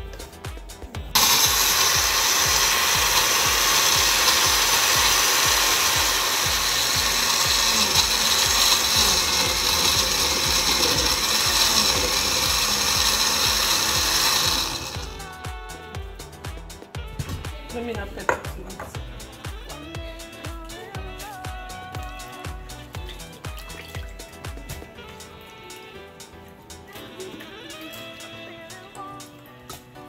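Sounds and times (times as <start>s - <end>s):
blender running: 1.1s - 15.9s.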